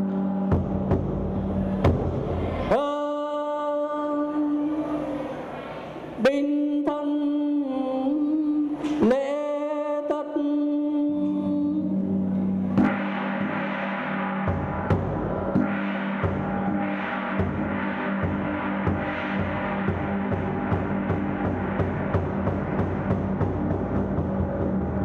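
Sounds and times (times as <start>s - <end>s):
drum strokes: 0.0s - 2.9s, 12.0s - 25.0s
ceremonial music with drone: 12.3s - 25.0s
gong ringing: 12.4s - 25.0s.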